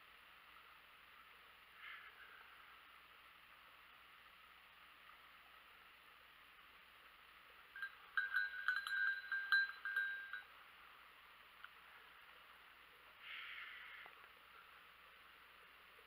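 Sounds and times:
dog collar bell clanking: 7.8s - 10.5s.

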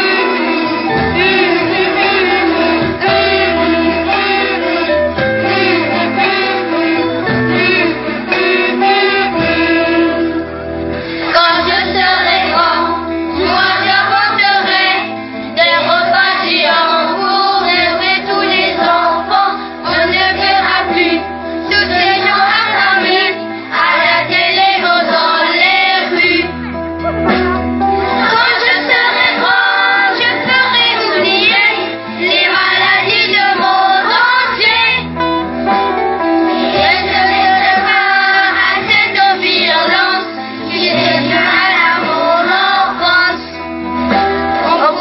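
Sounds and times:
voices singing a song: 0.0s - 26.6s, 28.1s - 35.4s, 36.5s - 45.0s
instrumental backing with bass: 0.0s - 45.0s.

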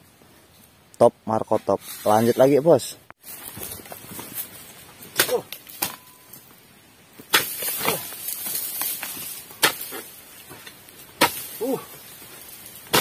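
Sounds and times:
rustling scrape of fronds: 1.5s - 6.5s, 7.2s - 13.0s
chisel chopping strikes: 8.9s - 10.0s, 11.2s - 11.6s.

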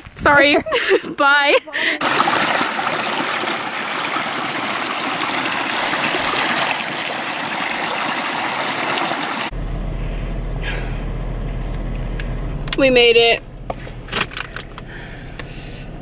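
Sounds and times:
creek babbling over rocks: 2.0s - 9.5s
low rumble inside a car: 9.5s - 16.0s.

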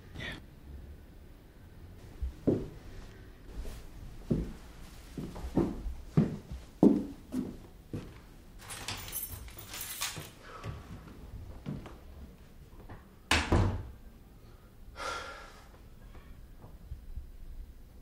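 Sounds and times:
rustling and shuffling: 2.0s - 13.2s
door shutting with a thud: 13.3s - 14.0s.

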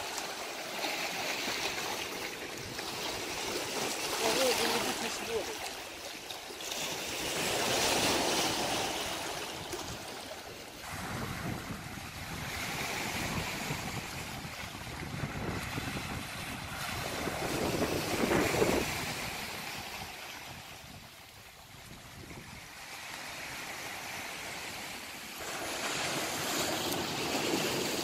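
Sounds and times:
surf washing over rocks and shingle: 0.0s - 28.0s.

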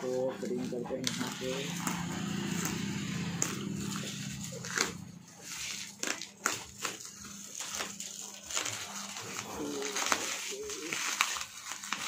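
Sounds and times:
steady low hum: 0.0s - 8.3s
bubble wrap crinkling: 0.0s - 12.0s.

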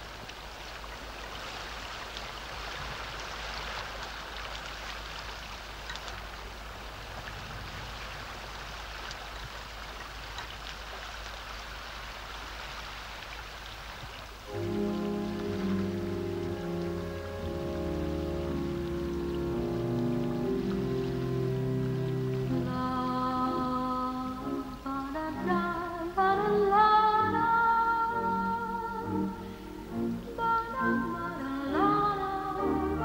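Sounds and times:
small water splashes: 0.0s - 22.9s
sea water lapping: 0.0s - 33.0s.

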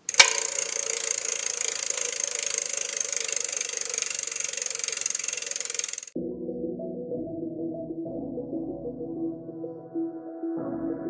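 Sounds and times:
bicycle chain and freewheel rattling: 0.0s - 6.2s.

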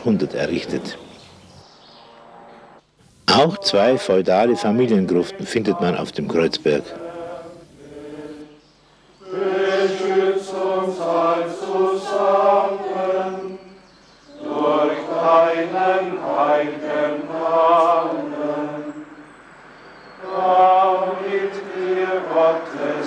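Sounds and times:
crowd chanting a prayer: 3.4s - 8.6s, 9.2s - 19.3s, 20.1s - 23.0s.

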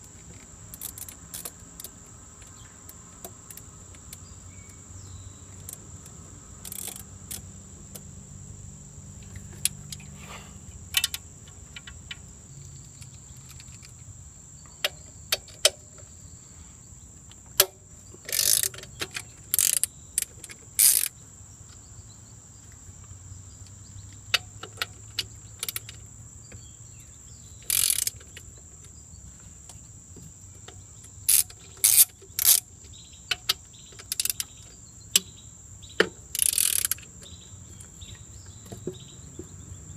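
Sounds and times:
ratchet wrench clicking: 0.3s - 1.9s, 6.6s - 7.5s, 17.6s - 21.2s, 24.3s - 26.0s, 27.6s - 28.4s, 31.2s - 32.7s, 33.3s - 35.3s, 36.3s - 37.3s.

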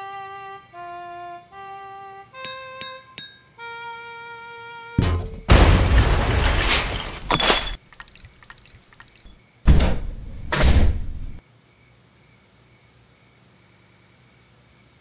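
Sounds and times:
heavy thuds and bangs: 5.0s - 7.3s
faint clicks: 7.8s - 9.4s.

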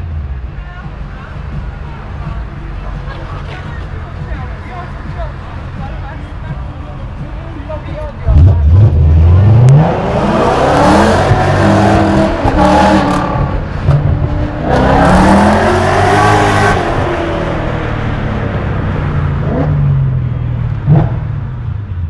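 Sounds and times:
engine accelerating hard: 8.2s - 22.0s.

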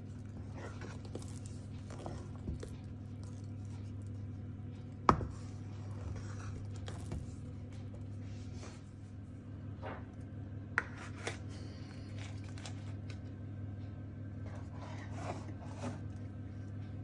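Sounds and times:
spoon scraping paste in pan: 5.1s - 7.1s.

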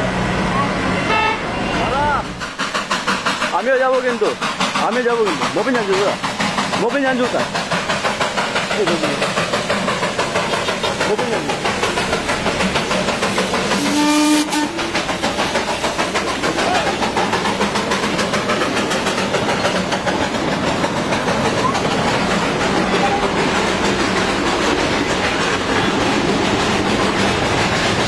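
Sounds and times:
steam train rhythmic clatter: 0.0s - 28.0s
steam whistle toot: 13.8s - 14.8s.

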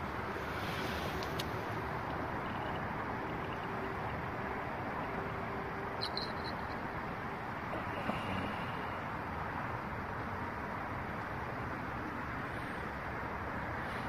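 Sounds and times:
distant traffic hum: 0.0s - 14.0s
high-pitched chirp: 6.0s - 6.8s.

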